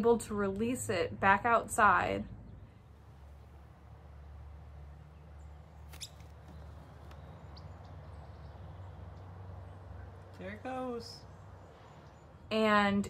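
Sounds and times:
faint high bird chirps: 5.2 - 9.0.

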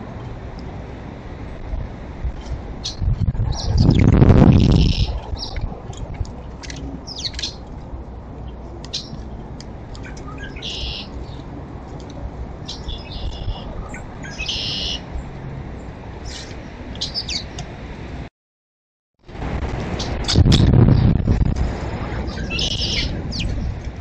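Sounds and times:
songbirds chirping and calling: 2.8 - 7.8, 8.4 - 17.7, 22.2 - 23.8
short buzzy bird calls: 3.6 - 5.6, 10.0 - 11.1, 12.7 - 15.1, 22.4 - 23.2.

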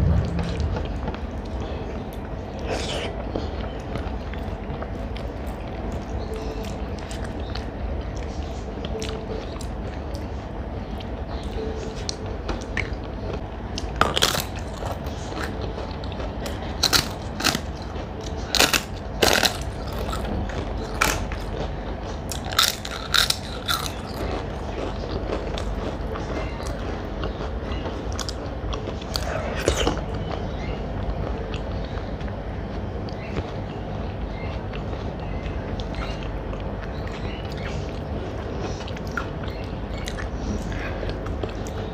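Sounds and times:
low background hum: 0.0 - 41.9
crunchy bites and chewing: 13.8 - 21.7, 22.3 - 30.7.

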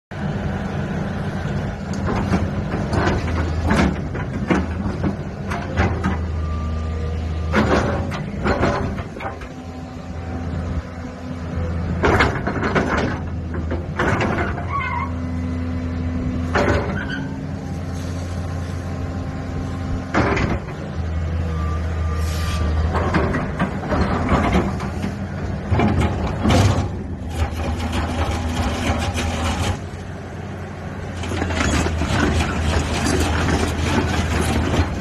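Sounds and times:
excavator diesel engine: 0.1 - 35.0
hissing squealing bursts: 22.2 - 22.7.

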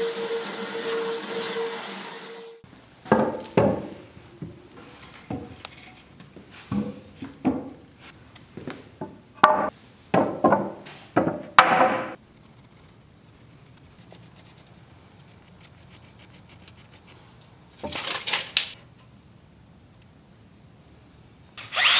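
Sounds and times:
leaf blower whine: 21.6 - 21.9.

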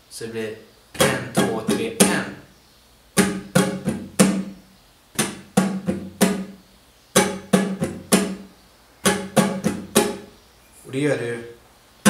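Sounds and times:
flamenco guitar strummed chords: 1.0 - 2.4, 3.2 - 4.6, 5.2 - 10.3.

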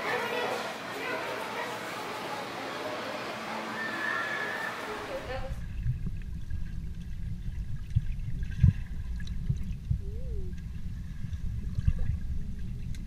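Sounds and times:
muffled underwater water rumble: 5.2 - 13.0.

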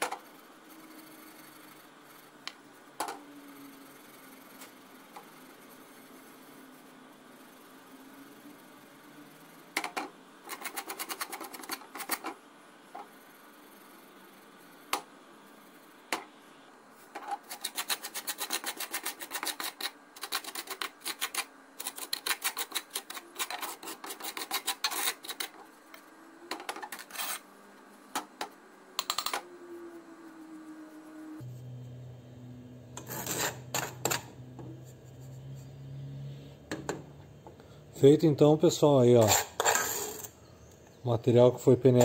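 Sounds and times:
metal spoon scraping soil in pan: 33.0 - 34.2, 39.2 - 40.3.

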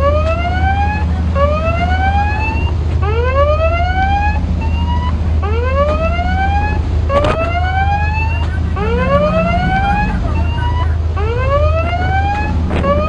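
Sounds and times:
ship engines droning: 0.0 - 13.0
siren whooping: 0.0 - 13.0.

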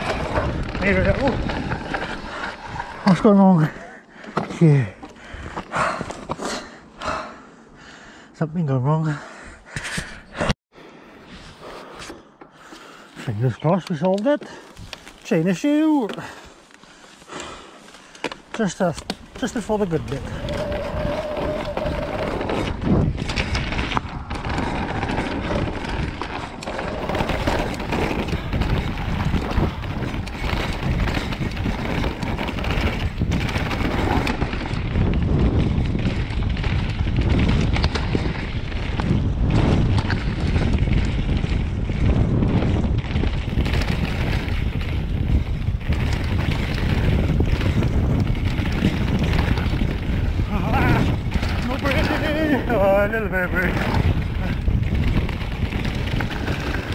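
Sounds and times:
wind buffeting microphone: 0.0 - 3.7, 18.8 - 56.9
bike tyres rolling over dirt: 0.0 - 7.2, 12.8 - 56.9
bike knocks and rattles: 18.2 - 52.9.

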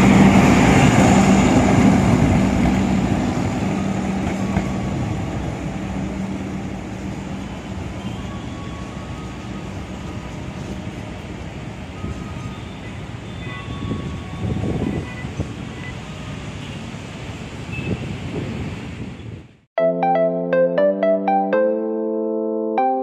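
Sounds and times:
train wheels rolling on rails: 0.0 - 14.9.

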